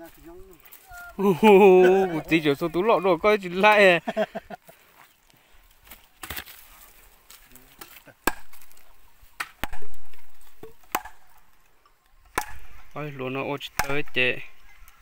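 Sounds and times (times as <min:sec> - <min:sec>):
log pounding wooden stakes: 0:05.9 - 0:06.6, 0:07.7 - 0:11.5, 0:12.2 - 0:13.0, 0:13.6 - 0:14.5.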